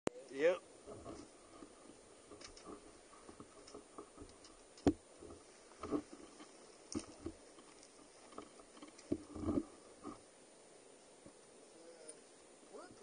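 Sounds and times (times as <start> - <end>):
faint knocks and clatter: 0.8 - 10.2.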